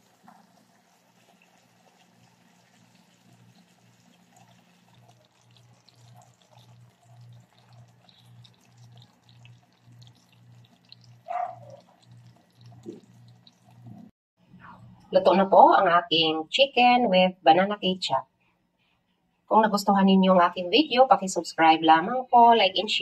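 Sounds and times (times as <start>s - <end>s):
thick sauce bubbling: 0.0s - 14.1s.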